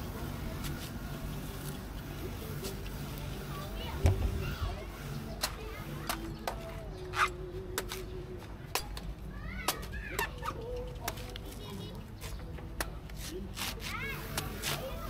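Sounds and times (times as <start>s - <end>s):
knife chopping coconut husk: 13.2s - 14.8s.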